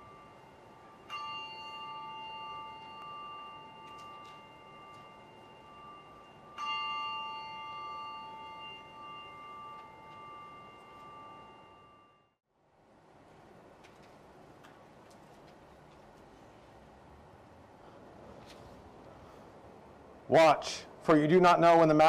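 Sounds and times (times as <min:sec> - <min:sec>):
bell ringing: 0:00.0 - 0:12.4.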